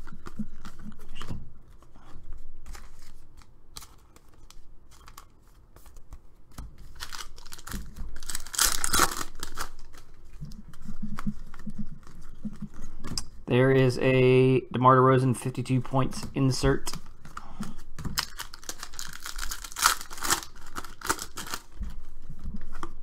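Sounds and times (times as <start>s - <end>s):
cards clicking and rustling: 2.6s - 12.8s, 16.9s - 22.0s
foil pack tearing and crinkling: 6.8s - 10.1s, 18.1s - 21.8s.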